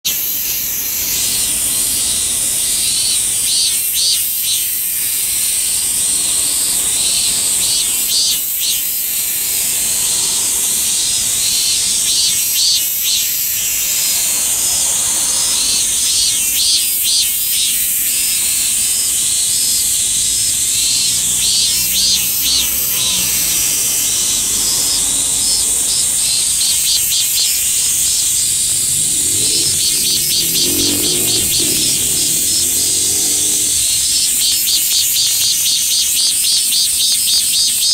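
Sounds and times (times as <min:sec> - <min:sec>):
cicada singing: 0:00.0 - 0:37.9.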